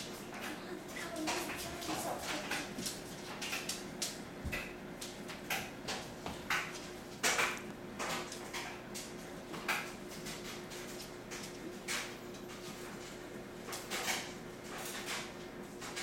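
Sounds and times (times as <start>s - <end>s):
ferret scampering on hardwood floor: 0.9s - 13.1s.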